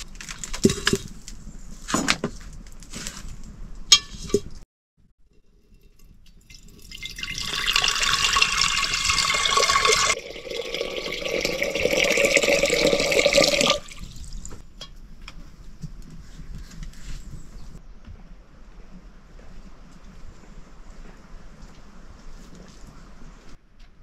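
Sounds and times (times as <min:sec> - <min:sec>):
water pouring into metal pot: 0:05.7 - 0:14.3.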